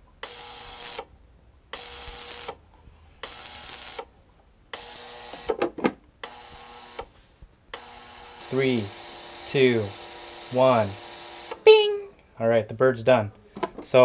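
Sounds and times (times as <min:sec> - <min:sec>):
ultrasonic cleaner hissing buzz: 0:00.0 - 0:13.7.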